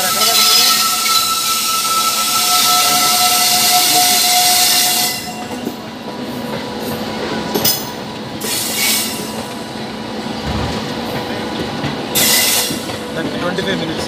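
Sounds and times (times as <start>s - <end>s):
train wheels rumbling on rails: 0.0s - 14.0s
wheels clacking over rail joints: 10.3s - 14.0s.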